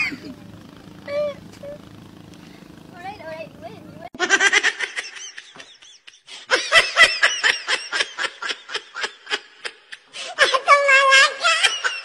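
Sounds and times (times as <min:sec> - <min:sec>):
person laughing: 0:00.0 - 0:00.4.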